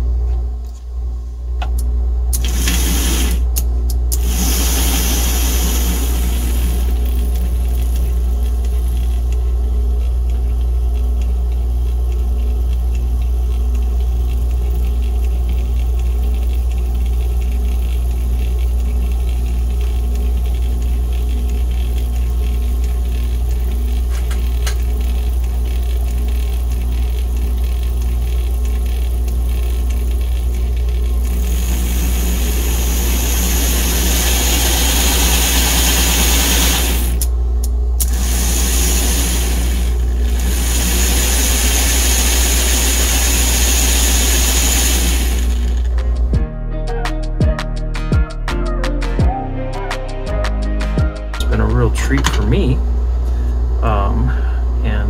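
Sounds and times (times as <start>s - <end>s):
electric motor humming: 2.3s - 37.4s, 38.0s - 46.3s.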